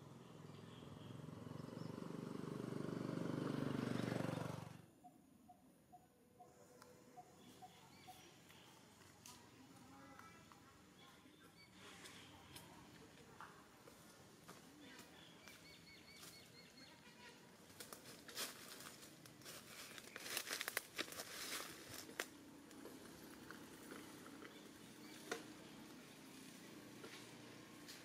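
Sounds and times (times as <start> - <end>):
faint high chirps: 5.0 - 12.8
rustling and crackling: 17.0 - 28.0.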